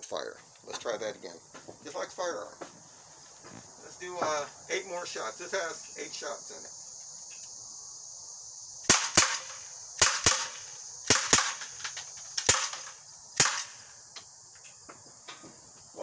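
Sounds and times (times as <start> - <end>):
pellet pistol shots: 8.8 - 13.9.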